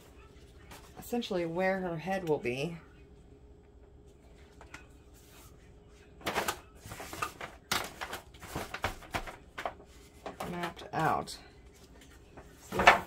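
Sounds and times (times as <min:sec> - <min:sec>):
foil pan crinkling and popping: 0:06.2 - 0:11.3.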